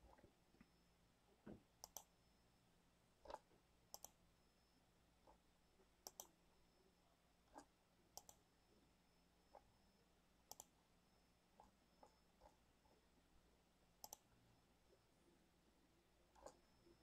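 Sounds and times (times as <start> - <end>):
mouse button clicking: 6.0 - 6.3.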